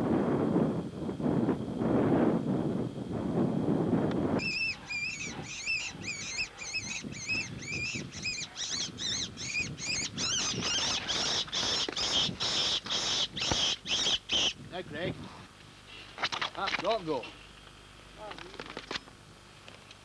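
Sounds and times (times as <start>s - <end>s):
high-pitched squealing calls: 4.4s - 14.6s.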